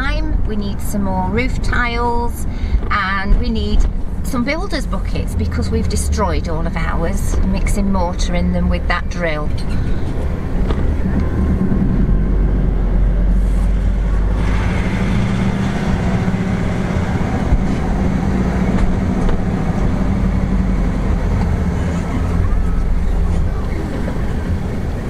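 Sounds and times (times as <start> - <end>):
car engine drone: 0.0 - 25.0
road noise hiss: 9.1 - 25.0.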